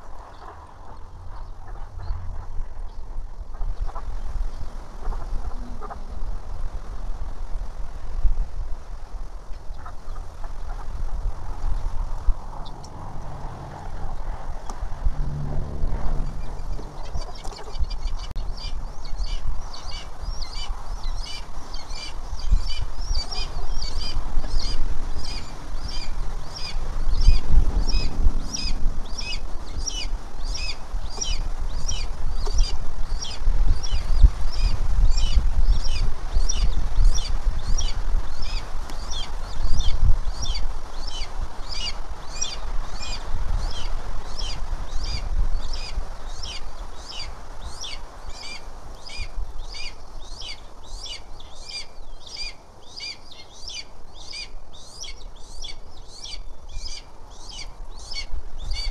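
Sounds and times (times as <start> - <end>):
low rumbling noise: 0.0 - 9.5, 10.3 - 41.8
bird chirping: 14.7 - 58.9.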